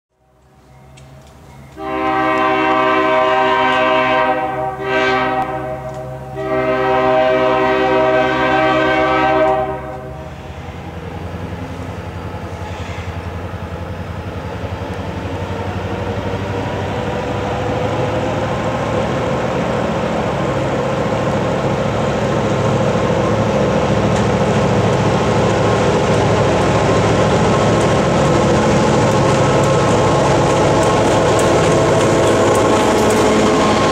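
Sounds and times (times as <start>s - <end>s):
locomotive horn blasts: 1.8s - 10.4s.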